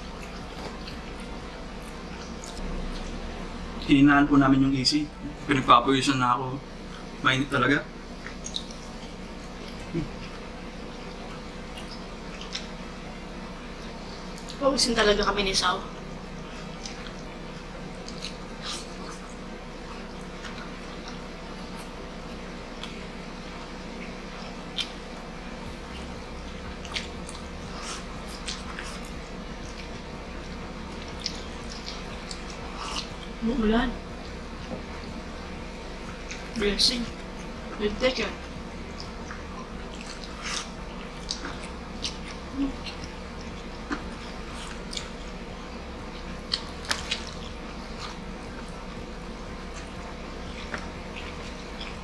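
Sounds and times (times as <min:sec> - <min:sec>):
chewing and wet mouth sounds: 0:00.0 - 0:04.0, 0:04.7 - 0:52.0
steady low hum: 0:00.0 - 0:52.0
fingers eating rice by hand: 0:38.5 - 0:52.0.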